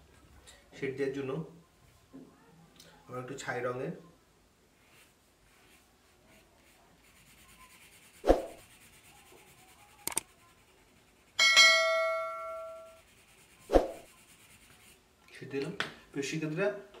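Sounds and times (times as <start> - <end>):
pencil shading on paper: 4.8 - 11.4, 12.7 - 15.1
double mouse click: 10.0 - 10.2
bell chime: 11.4 - 12.9.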